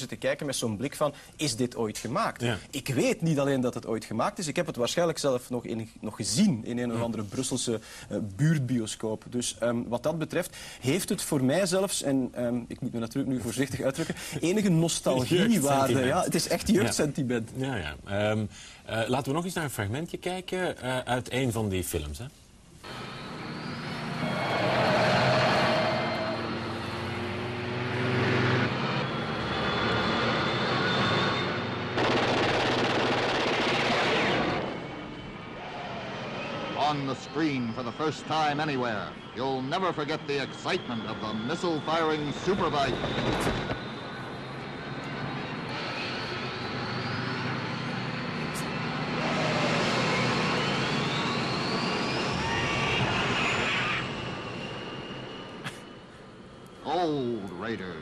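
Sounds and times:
motorcycle engine drone: 22.9 - 38.5, 40.0 - 56.1.

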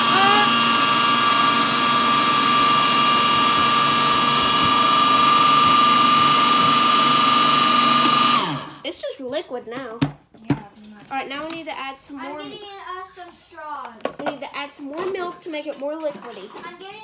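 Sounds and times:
food processor motor whining: 0.0 - 8.8.

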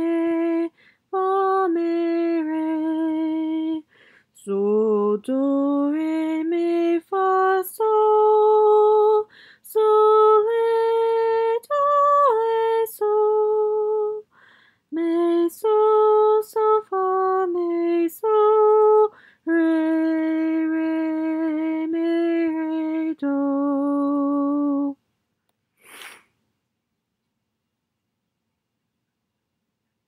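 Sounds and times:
woman singing unaccompanied: 0.0 - 14.3, 14.9 - 25.0
singer breathing: 0.7 - 1.1, 3.9 - 4.3, 9.3 - 9.6, 14.3 - 14.9, 19.1 - 19.4, 25.8 - 26.4.

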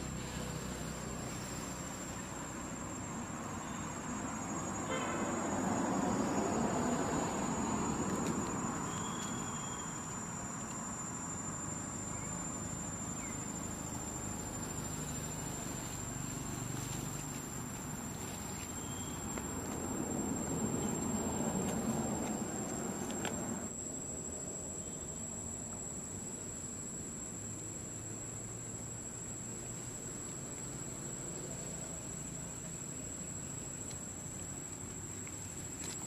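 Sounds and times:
insects droning: 0.0 - 36.0.

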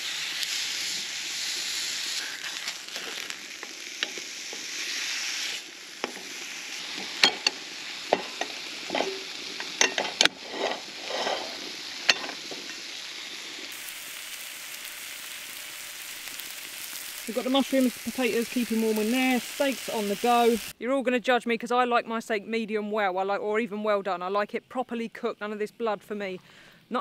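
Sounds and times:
steak sizzling in a frying pan: 0.0 - 20.8.

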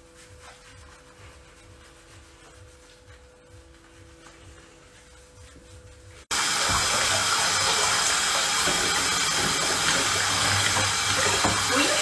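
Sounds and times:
faucet water running and splashing: 6.3 - 12.0.

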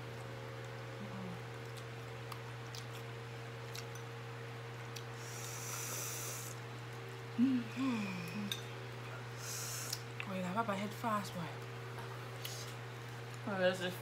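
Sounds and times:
steady low hum: 0.0 - 14.0
person humming mm: 1.0 - 1.5, 7.4 - 8.6
hissing slurp: 5.2 - 6.6.

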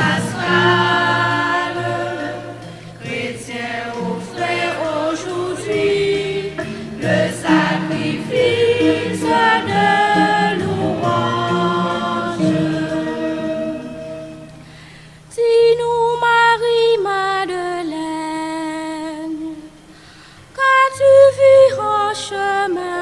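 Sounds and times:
choir holding a chord: 0.0 - 14.9
woman singing into a microphone: 15.3 - 19.8, 20.5 - 23.0.

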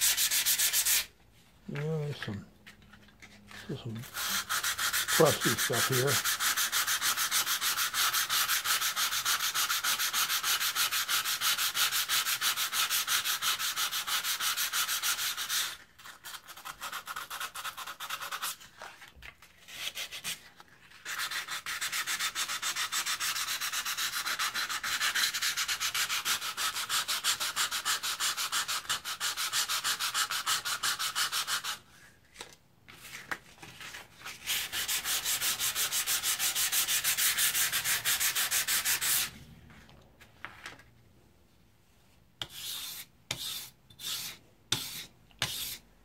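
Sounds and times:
sandpaper rubbing on metal blade: 0.0 - 1.1, 4.0 - 18.6, 34.5 - 39.3, 42.4 - 45.8.

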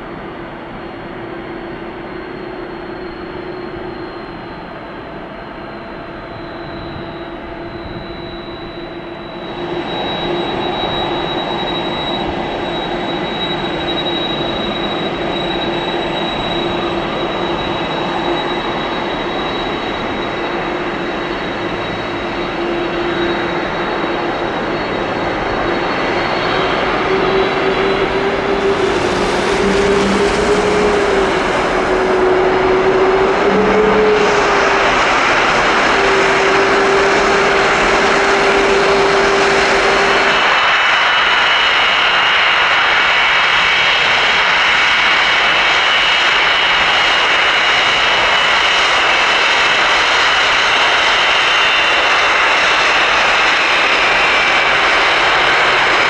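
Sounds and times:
jet engines roaring: 0.0 - 56.0
high whine: 0.1 - 56.0.

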